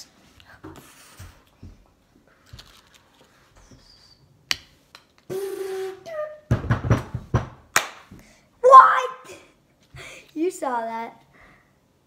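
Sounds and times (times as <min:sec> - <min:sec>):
dull knocks and thumps: 0:06.5 - 0:07.6.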